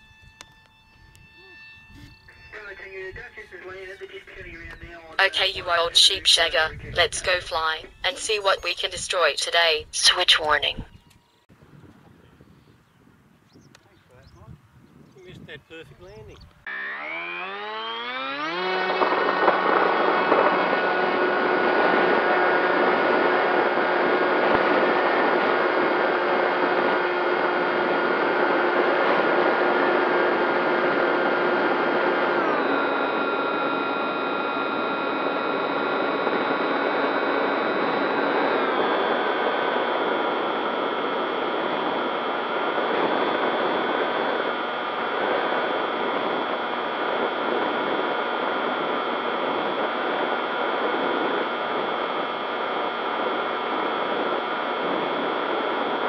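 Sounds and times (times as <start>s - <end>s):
model plane motor whine: 0.0s - 3.0s, 16.7s - 56.0s.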